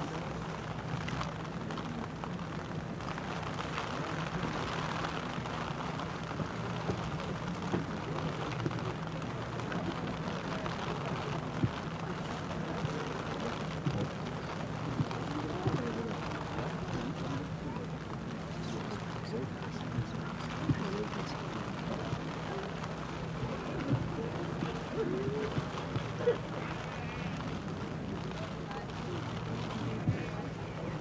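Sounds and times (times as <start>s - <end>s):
rushing outdoor field ambience: 0.0s - 31.0s.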